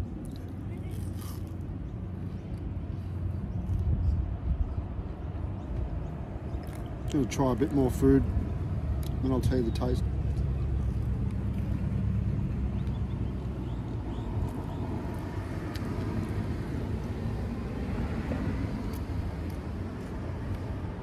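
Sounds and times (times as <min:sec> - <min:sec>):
road traffic rumble: 0:00.0 - 0:21.0
vehicle passing: 0:06.5 - 0:21.0.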